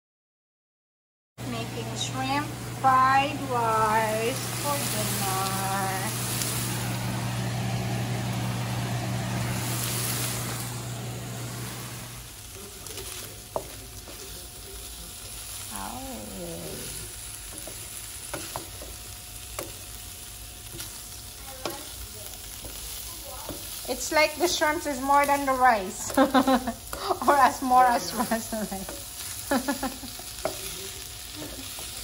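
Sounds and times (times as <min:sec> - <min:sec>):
low hum: 0:01.4 - 0:12.4
fried rice sizzling in a pan: 0:02.1 - 0:32.0.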